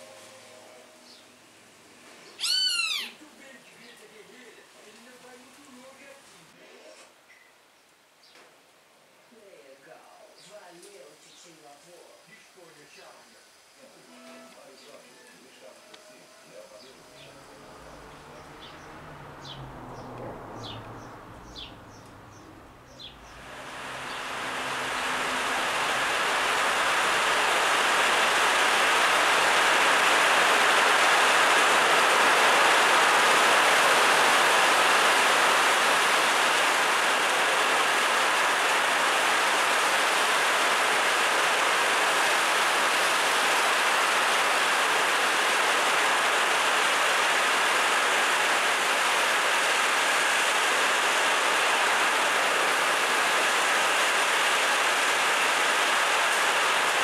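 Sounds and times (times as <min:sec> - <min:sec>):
heavy rain: 0:16.2 - 0:57.0
runoff pouring off metal roof: 0:23.2 - 0:57.0.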